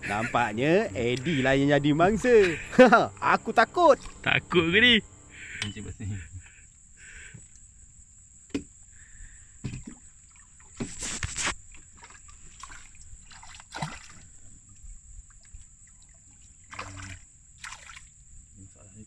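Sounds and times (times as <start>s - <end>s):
water splashing and sloshing: 0.0s - 4.5s, 9.6s - 18.5s
high insect whine: 0.0s - 19.0s
knocks against a boat: 8.5s - 8.7s, 9.6s - 10.0s.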